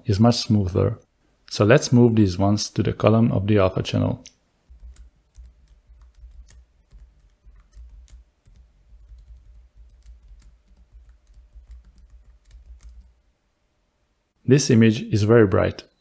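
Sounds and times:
computer keyboard keystrokes: 4.7 - 13.2.

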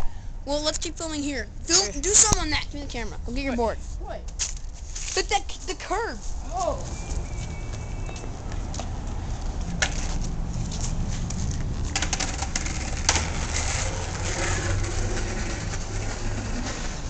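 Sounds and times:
branches rustling and scraping: 4.4 - 8.2
wind rumble: 6.2 - 17.0.

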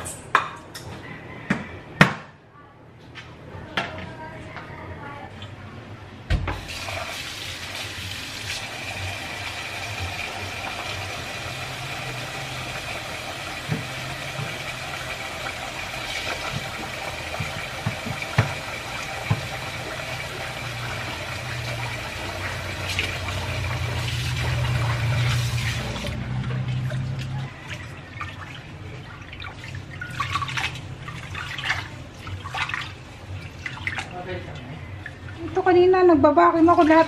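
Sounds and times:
faucet running into metal bowl: 6.6 - 27.3.

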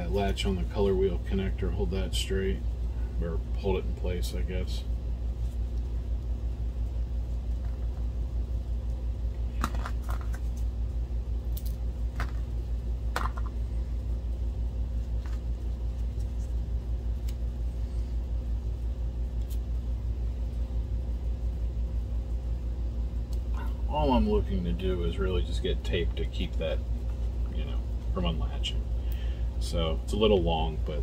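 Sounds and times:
low rumbling pulsing hum: 0.0 - 31.0
tape clicks and rustles: 9.5 - 10.7.

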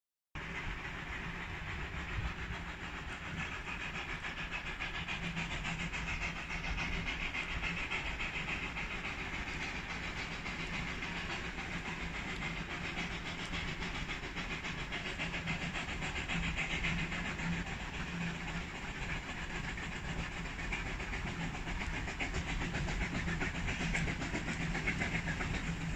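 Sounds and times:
steam locomotive hissing: 0.4 - 25.9.

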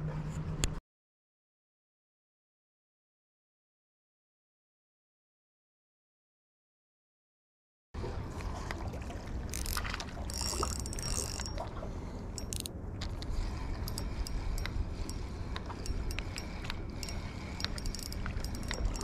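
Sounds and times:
steady low rumble: 8.0 - 19.0
fishing reel clicking: 9.5 - 11.6, 12.4 - 12.7, 13.8 - 19.0.

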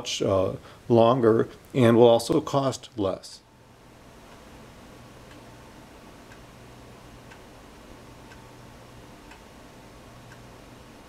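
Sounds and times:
steady low hum: 0.0 - 11.0
faint regular ticking: 4.1 - 11.0.

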